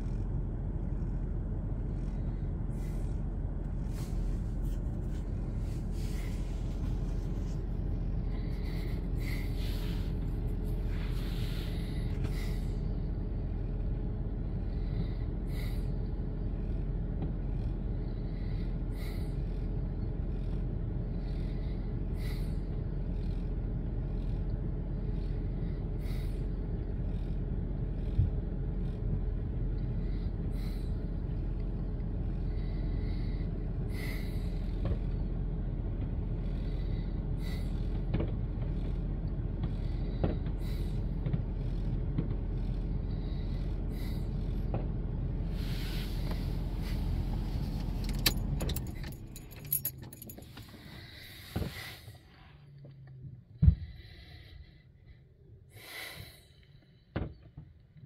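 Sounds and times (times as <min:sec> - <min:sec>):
steady low rumble: 0:00.0 - 0:58.0
jingling clicking sounds: 0:48.0 - 0:50.9.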